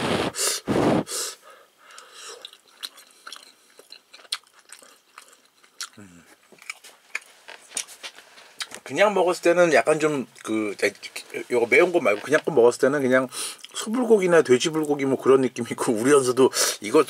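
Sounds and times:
person chewing wetly: 0:01.8 - 0:07.9.

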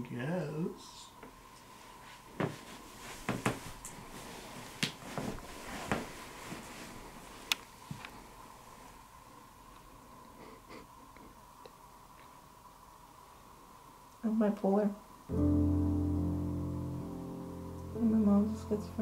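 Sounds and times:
faint steady hum: 0:00.0 - 0:19.0
rustling clothing and bedding: 0:01.6 - 0:09.7.

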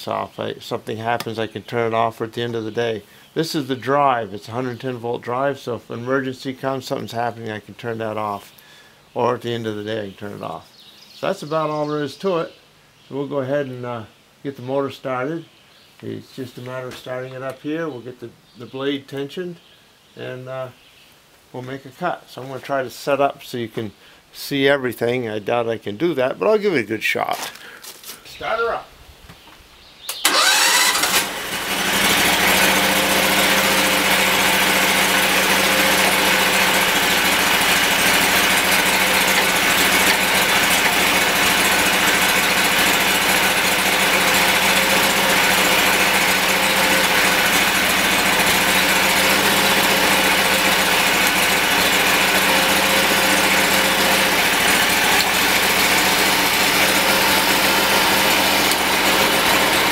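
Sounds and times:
sawmill engine starting and running: 0:30.1 - 0:59.9.

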